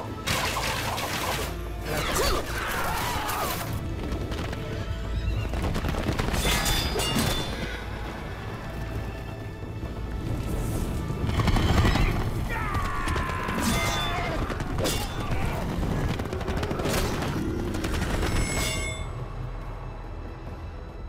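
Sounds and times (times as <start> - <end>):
film score music: 0.0 - 21.0
galloping hooves: 3.8 - 6.7, 7.3 - 18.2.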